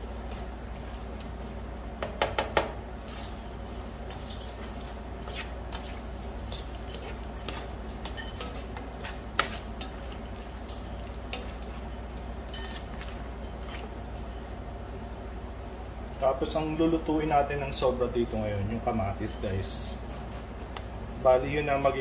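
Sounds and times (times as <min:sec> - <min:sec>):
spoon stirring food in pan: 0:00.0 - 0:14.8
spoon knocking on pan: 0:02.0 - 0:02.8.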